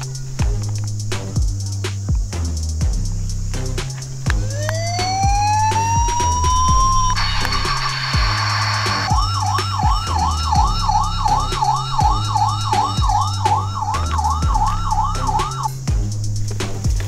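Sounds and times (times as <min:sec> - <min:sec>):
music with steady beat: 0:00.0 - 0:17.0
toy siren wailing: 0:04.4 - 0:15.8.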